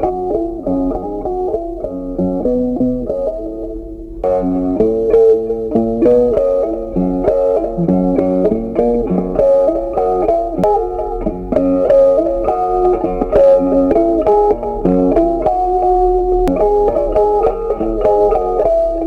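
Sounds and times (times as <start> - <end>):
plucked guitar melody: 0.0 - 19.0
bass line: 7.5 - 9.1.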